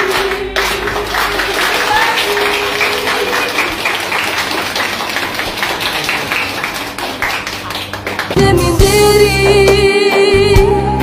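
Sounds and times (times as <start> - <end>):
people clapping: 0.0 - 8.6.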